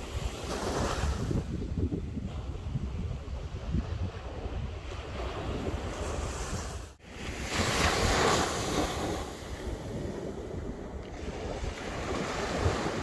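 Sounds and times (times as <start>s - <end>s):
wind buffeting microphone: 0.0s - 13.0s
surf breaking on beach: 5.0s - 13.0s.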